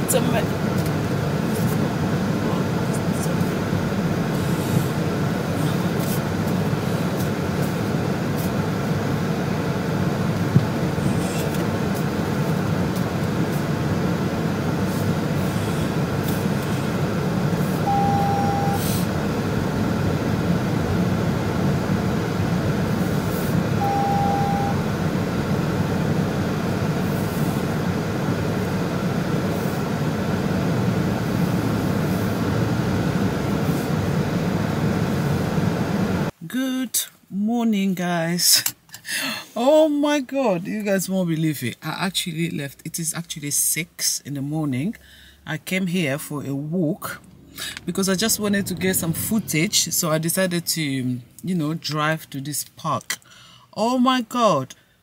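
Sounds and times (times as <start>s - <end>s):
car engine and road rumble: 0.0s - 36.4s, 41.2s - 53.2s
short electronic car beeps: 17.8s - 18.9s, 23.8s - 24.8s.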